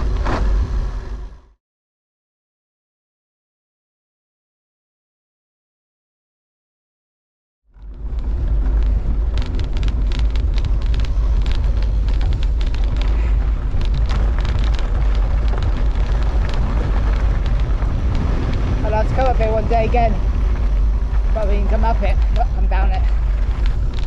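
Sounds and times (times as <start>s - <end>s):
bike rattles and clicks: 7.7s - 24.0s
wind buffeting microphone: 7.8s - 24.0s.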